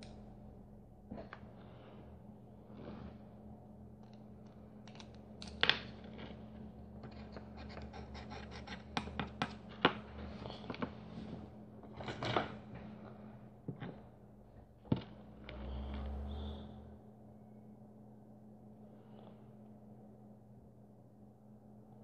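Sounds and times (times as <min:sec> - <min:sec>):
steady low hum: 0:00.0 - 0:22.0
clicks and scratches of electronic parts: 0:04.0 - 0:10.1.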